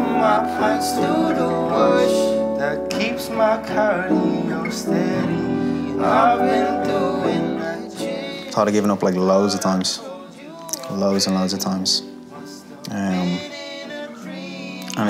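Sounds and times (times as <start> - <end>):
upright piano chords: 0.0 - 10.4
acoustic guitars strumming: 0.0 - 15.0.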